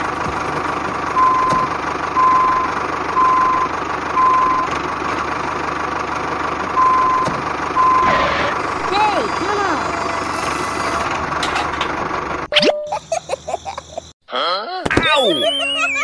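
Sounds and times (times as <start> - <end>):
engine running: 0.0 - 14.1
reversing alarm beeping: 1.2 - 4.7, 6.8 - 11.0.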